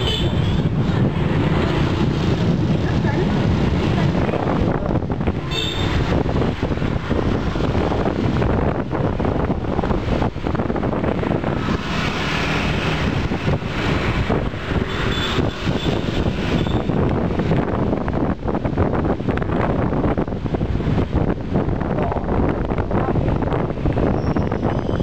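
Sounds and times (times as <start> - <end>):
vehicle road and engine noise: 0.0 - 25.0
wind buffeting microphone: 0.0 - 25.0.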